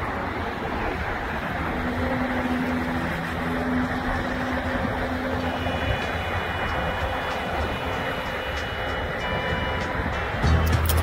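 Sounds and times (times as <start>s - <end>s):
low motor hum: 0.0s - 11.0s
rushing outdoor noise: 0.0s - 11.0s.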